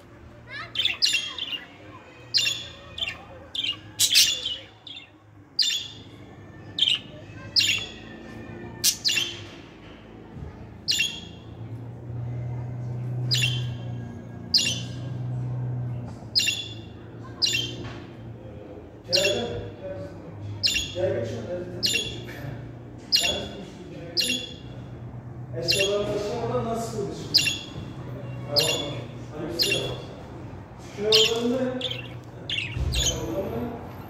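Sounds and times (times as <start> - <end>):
budgerigars chirping: 2.4 - 6.1, 13.3 - 13.8, 14.5 - 15.1, 16.3 - 17.8, 19.1 - 19.7, 20.6 - 21.2, 21.8 - 22.4, 23.1 - 24.8, 25.6 - 26.3, 27.3 - 27.8, 28.5 - 30.1, 31.0 - 33.5.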